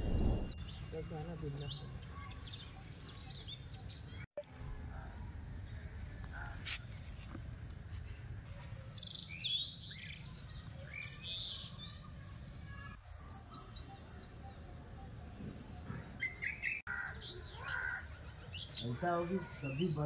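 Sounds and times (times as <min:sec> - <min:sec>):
small birds chirping: 0:00.0 - 0:20.0.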